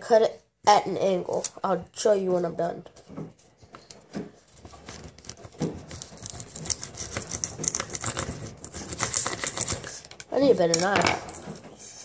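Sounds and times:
knife scraping plastic straw: 3.7s - 10.2s.

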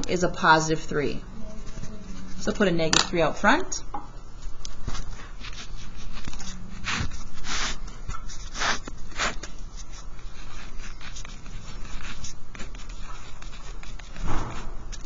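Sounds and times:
steady low hum: 0.0s - 15.0s
ballpoint pen scratching on paper: 4.6s - 15.0s.

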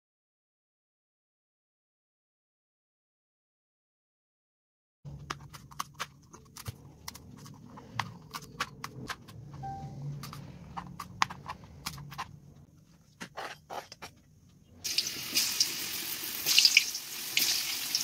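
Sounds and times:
low background hum: 5.1s - 14.8s.

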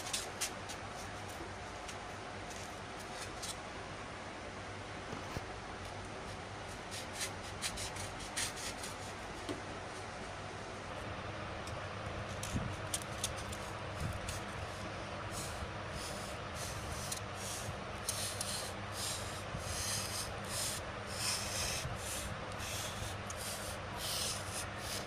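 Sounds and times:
knife blade scraping foam: 6.7s - 9.2s, 12.4s - 25.0s.

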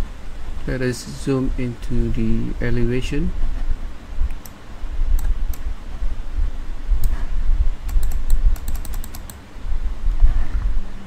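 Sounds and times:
computer keyboard clicks: 7.9s - 9.4s.

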